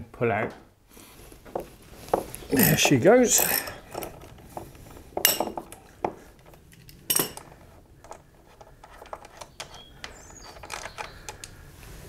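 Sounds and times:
metal hand tools clinking: 2.5s - 6.0s, 6.7s - 8.2s.

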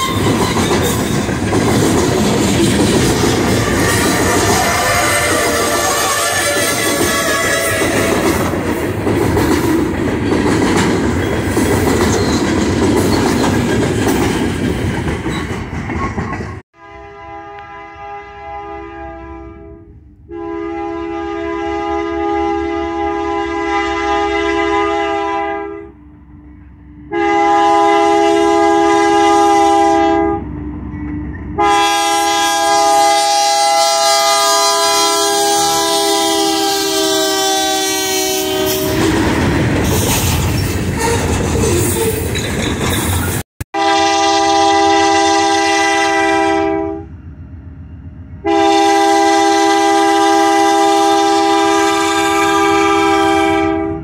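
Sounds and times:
locomotive air horn blasts: 0.0s - 0.8s, 3.3s - 8.5s, 16.8s - 30.6s, 31.6s - 39.4s, 43.7s - 47.1s, 48.4s - 54.0s
passing locomotives and ore cars: 0.0s - 54.0s.

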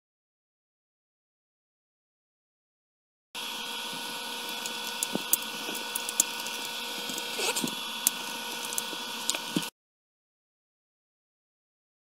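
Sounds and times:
background hum and hiss: 3.4s - 9.7s.

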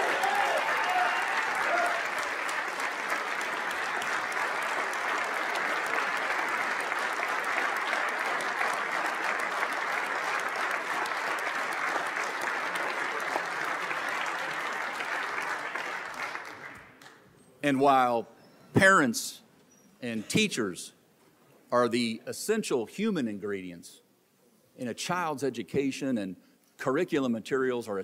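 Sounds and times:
large crowd applauding: 0.0s - 17.2s.

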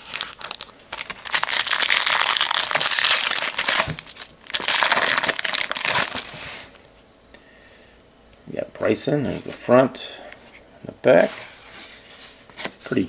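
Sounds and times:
foil wrapper crinkling torn: 0.0s - 6.4s.

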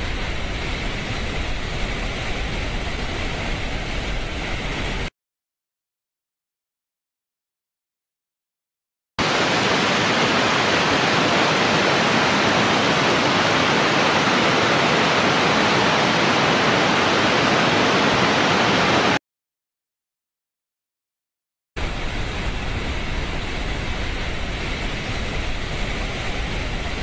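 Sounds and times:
rushing water through pipe: 9.2s - 19.2s, 21.8s - 27.0s.

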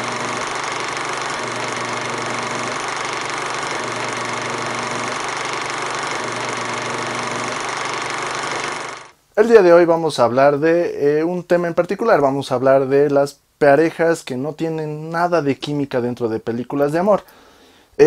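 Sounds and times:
film projector whirring clatter: 0.0s - 9.2s.

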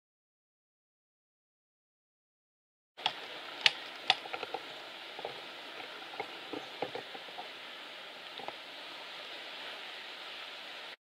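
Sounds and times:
background hiss: 3.0s - 11.0s.

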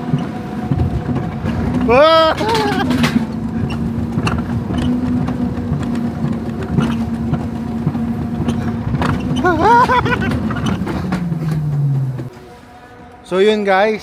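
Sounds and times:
coaster sled rumbling on track: 0.0s - 14.0s
rattling clicks: 1.0s - 12.3s
rider crying out: 1.8s - 3.2s, 9.3s - 10.5s.

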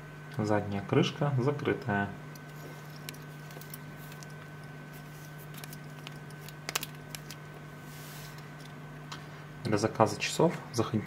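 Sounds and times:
low electrical hum: 0.0s - 11.0s
watch strap clicks and rubbing: 2.4s - 7.4s.

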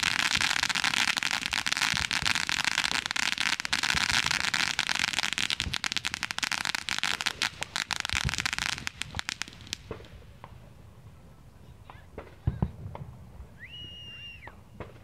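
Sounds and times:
firework hiss: 0.0s - 10.4s
firework crackling: 0.0s - 10.7s.

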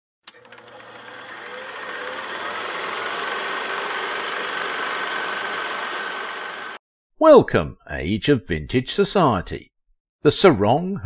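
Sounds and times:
film projector clatter: 0.3s - 6.8s.

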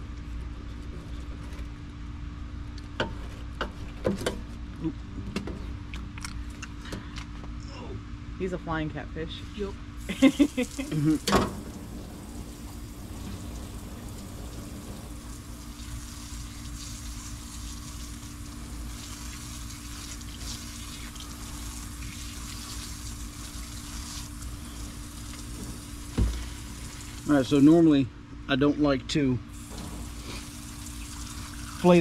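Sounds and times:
low steady hum: 0.0s - 32.0s
running water: 10.0s - 27.9s, 29.5s - 32.0s.

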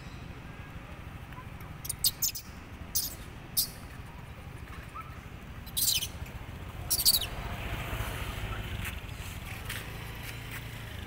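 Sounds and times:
birds chirping: 0.0s - 8.8s.

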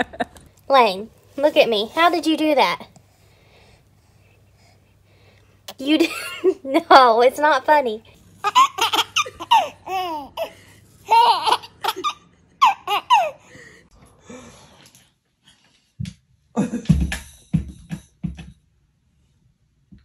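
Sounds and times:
baby laughing: 8.4s - 13.4s.

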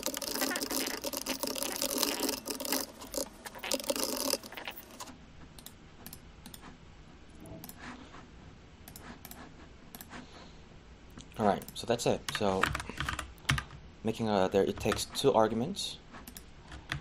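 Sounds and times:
typing on computer keyboard: 0.0s - 6.6s, 12.3s - 13.8s.

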